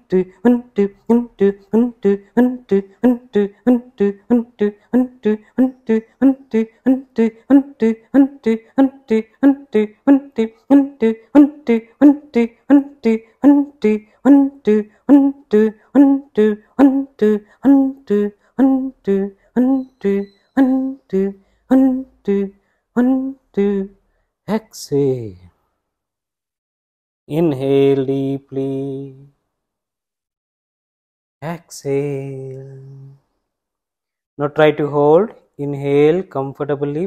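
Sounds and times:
forceful rhythmic exhalations: 0:00.0 - 0:23.4.

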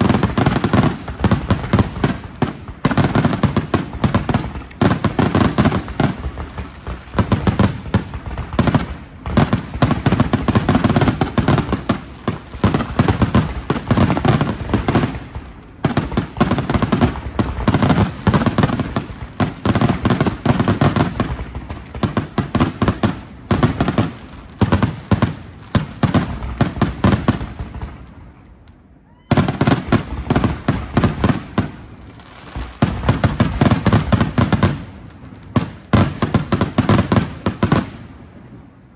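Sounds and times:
fireworks booming and crackling: 0:00.0 - 0:38.9.

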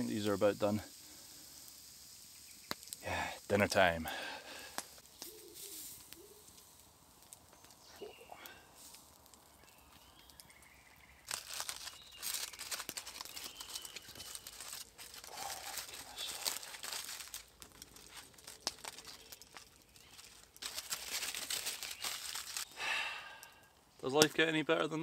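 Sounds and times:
aluminium foil crinkling and tearing: 0:04.5 - 0:22.7.

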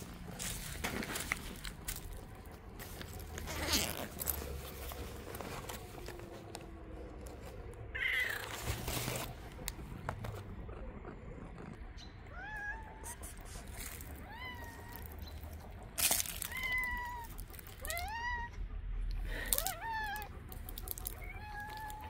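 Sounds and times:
scuffing and rustling: 0:00.0 - 0:06.5
cat meowing: 0:07.9 - 0:08.6, 0:12.3 - 0:13.4, 0:14.2 - 0:15.2, 0:16.2 - 0:18.6, 0:19.5 - 0:20.4, 0:21.0 - 0:22.0.

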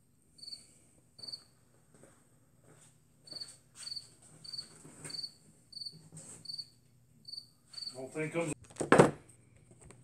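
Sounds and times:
cricket chirping: 0:00.4 - 0:01.5, 0:03.3 - 0:08.0.

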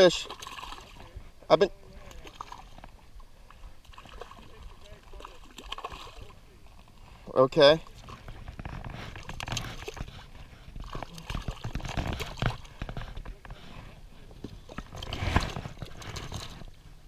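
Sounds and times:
fish splashing in water: 0:00.0 - 0:01.2, 0:01.8 - 0:06.8, 0:09.0 - 0:13.2.

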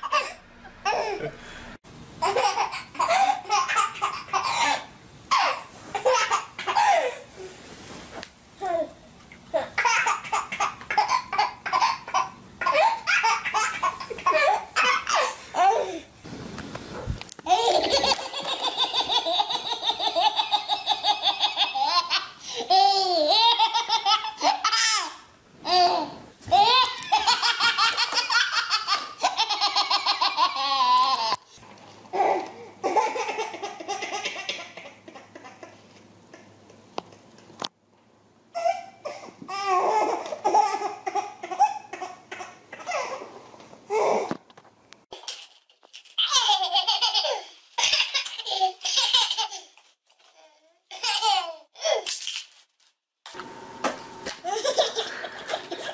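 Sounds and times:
babies laughing: 0:02.2 - 0:07.2, 0:09.6 - 0:15.9, 0:17.5 - 0:31.4, 0:32.2 - 0:36.5, 0:38.6 - 0:43.3, 0:46.2 - 0:49.8, 0:54.4 - 0:55.9.

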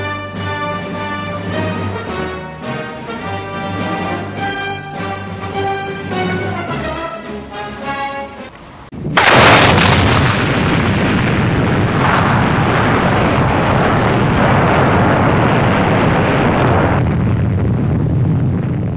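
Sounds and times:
dense steady rumbling: 0:08.5 - 0:18.9
loud blast: 0:09.0 - 0:18.9.

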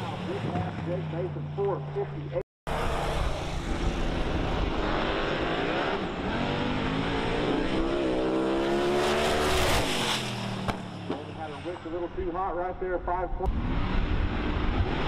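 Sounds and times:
racing car engine at full throttle: 0:00.0 - 0:12.3, 0:13.4 - 0:15.0.

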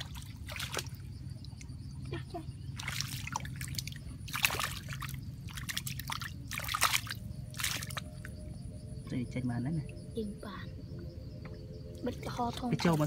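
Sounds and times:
hand splashing in muddy water: 0:02.8 - 0:08.0.

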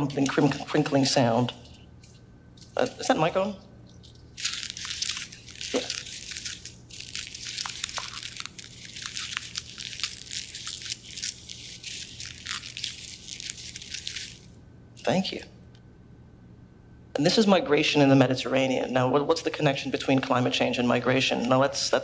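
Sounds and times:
paper crumpling: 0:03.9 - 0:14.5.

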